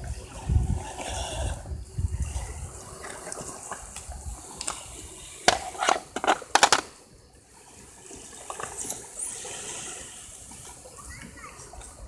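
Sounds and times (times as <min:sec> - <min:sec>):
water lapping at shore: 0:00.0 - 0:06.2, 0:06.9 - 0:12.0
toy car clattering on rocks: 0:05.5 - 0:07.0.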